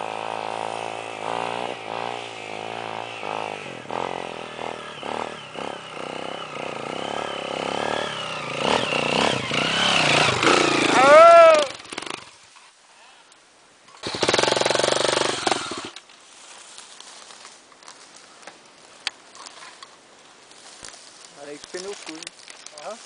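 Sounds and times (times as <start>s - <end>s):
motorbike engine revving: 0.0s - 12.4s, 14.0s - 16.0s.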